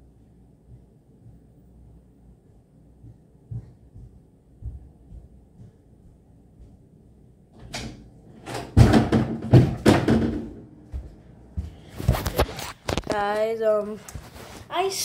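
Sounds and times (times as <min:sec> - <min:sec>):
door knocking and banging shut: 0:07.6 - 0:10.6
door thumping: 0:07.6 - 0:10.6.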